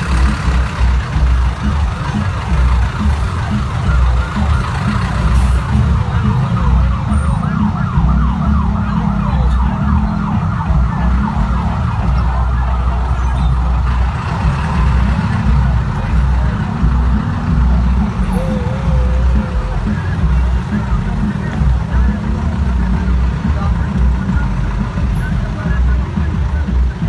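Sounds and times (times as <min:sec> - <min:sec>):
vehicle engine rumble: 0:00.0 - 0:27.0
siren sweeping: 0:03.4 - 0:14.1.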